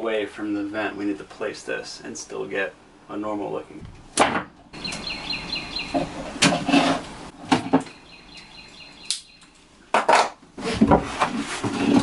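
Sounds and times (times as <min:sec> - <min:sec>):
bird chirping: 0:04.7 - 0:06.4, 0:07.4 - 0:09.7.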